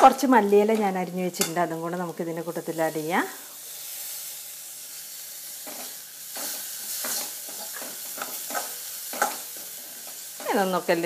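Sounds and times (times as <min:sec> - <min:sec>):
food sizzling in a pan: 0:00.0 - 0:11.0
spatula scraping a pan: 0:05.1 - 0:10.7
spatula tapping a pan: 0:05.6 - 0:10.2.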